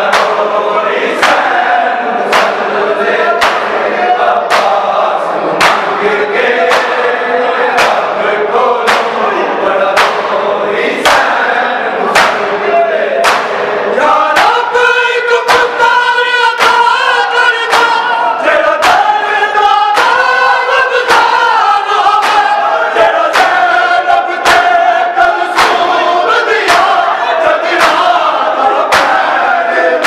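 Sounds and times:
men chanting a lament: 0:00.0 - 0:30.0
hands slapping bare chests: 0:00.1 - 0:00.4, 0:01.2 - 0:01.5, 0:02.3 - 0:02.7, 0:03.4 - 0:03.8, 0:04.5 - 0:04.9, 0:05.6 - 0:05.9, 0:06.6 - 0:07.0, 0:07.8 - 0:08.1, 0:08.8 - 0:09.2, 0:10.0 - 0:10.3, 0:11.0 - 0:11.4, 0:12.1 - 0:12.5, 0:13.2 - 0:13.7, 0:15.5 - 0:15.8, 0:16.5 - 0:16.8, 0:17.6 - 0:18.0, 0:18.8 - 0:19.1, 0:19.9 - 0:20.3, 0:22.2 - 0:22.6, 0:23.3 - 0:23.6, 0:24.4 - 0:24.8, 0:25.5 - 0:25.9, 0:26.6 - 0:27.0, 0:27.8 - 0:28.1, 0:28.9 - 0:29.4.

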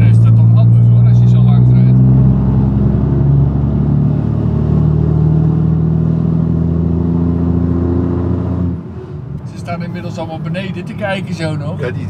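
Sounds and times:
truck diesel engine droning: 0:00.0 - 0:12.0.

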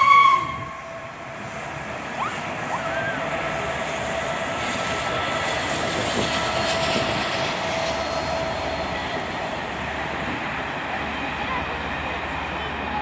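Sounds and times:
wheels rumbling on rails: 0:00.0 - 0:13.0.

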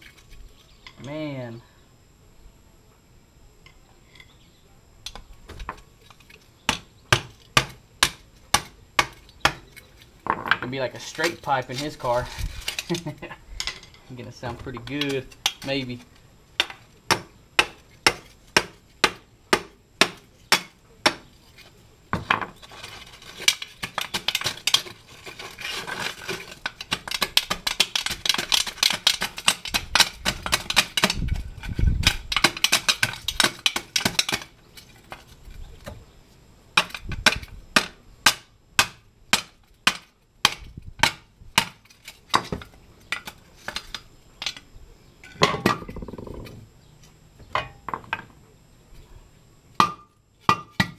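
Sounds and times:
crunching and rattling: 0:05.1 - 0:19.0, 0:20.2 - 0:36.0.

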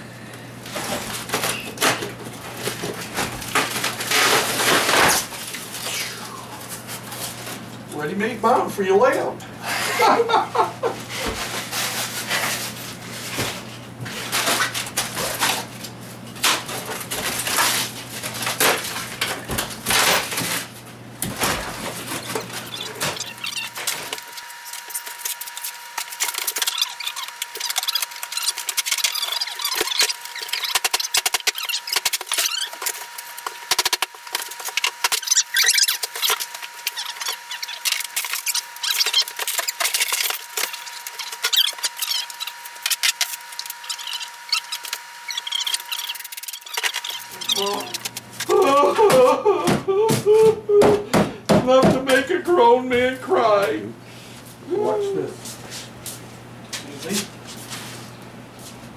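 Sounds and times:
foam board cracking and snapping: 0:00.7 - 0:06.0.

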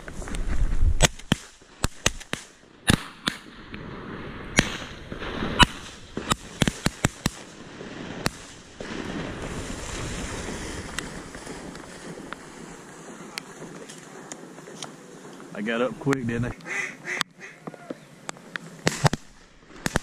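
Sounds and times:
shotgun shots: 0:01.0 - 0:03.5, 0:04.5 - 0:07.6, 0:18.8 - 0:20.0.

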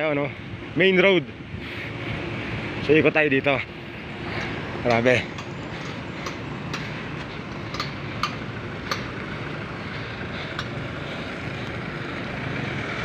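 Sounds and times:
low hum of traffic: 0:00.0 - 0:13.0.

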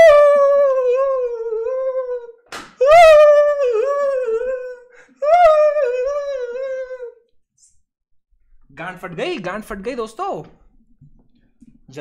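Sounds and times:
man howling: 0:00.0 - 0:07.2.

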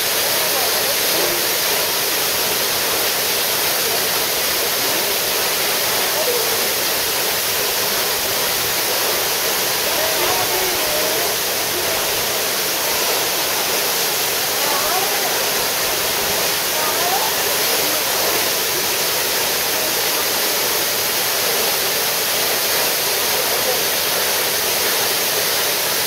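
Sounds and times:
waterfall rushing: 0:00.0 - 0:26.0.

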